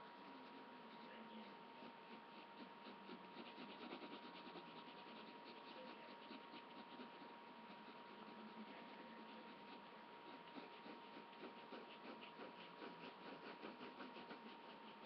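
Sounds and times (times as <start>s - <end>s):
pencil scratching on paper: 0.0s - 15.0s.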